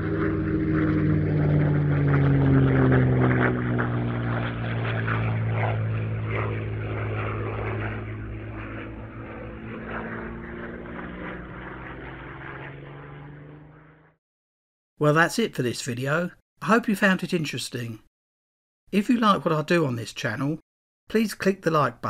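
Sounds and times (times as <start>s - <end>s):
propeller aircraft engine running: 0.0s - 14.2s.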